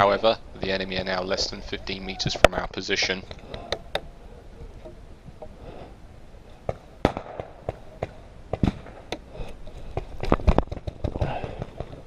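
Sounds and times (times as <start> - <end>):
paintball markers firing: 7.0 - 9.2.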